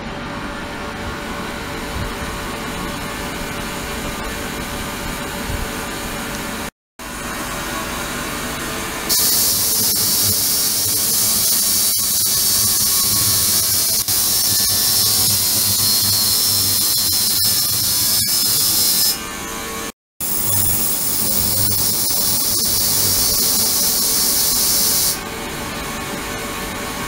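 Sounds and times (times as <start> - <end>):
loud high hiss: 9.1 - 19.2, 20.2 - 25.2
ultrasonic cleaner water hissing: 9.1 - 19.2, 20.2 - 25.2.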